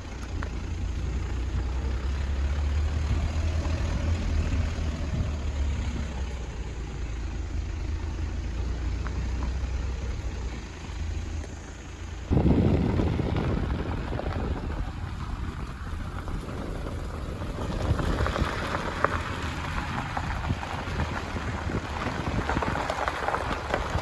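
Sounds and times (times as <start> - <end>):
car engine and tyres rumbling: 0.0 - 24.0
wind buffeting microphone: 8.2 - 24.0.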